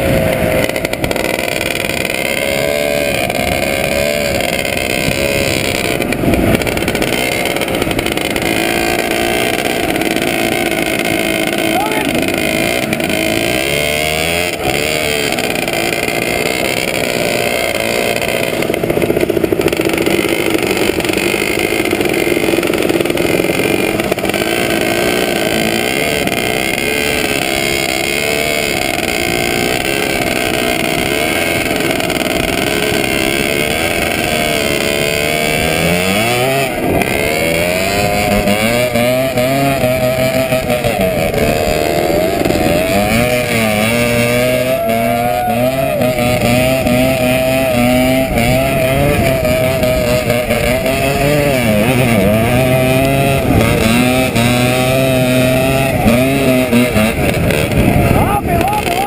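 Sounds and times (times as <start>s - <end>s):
motorcycle engine revving high: 0.0s - 59.0s
other motorcycles: 0.0s - 59.0s
wind on microphone: 56.9s - 58.7s.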